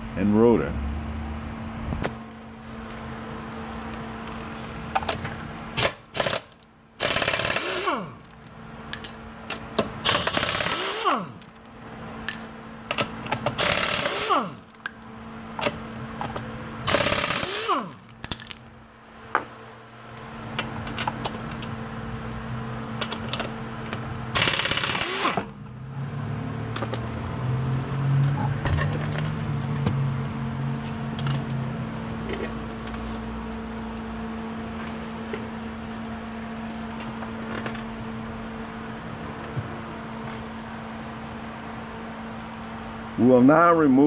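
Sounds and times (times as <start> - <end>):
impact wrench spinning: 5.8 - 8.4, 10.0 - 11.5, 13.5 - 14.6, 16.9 - 18.5, 24.4 - 25.7
metallic clinks of lug nuts: 25.6 - 27.3.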